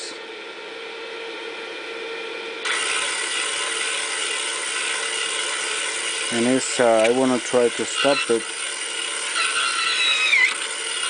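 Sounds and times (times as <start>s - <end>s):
electric motor whirring: 2.6s - 11.0s.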